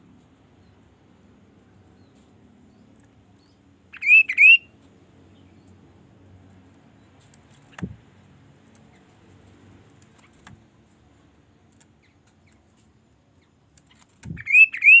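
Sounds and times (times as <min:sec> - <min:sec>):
bird whistling call: 0:04.0 - 0:04.7, 0:14.4 - 0:15.0.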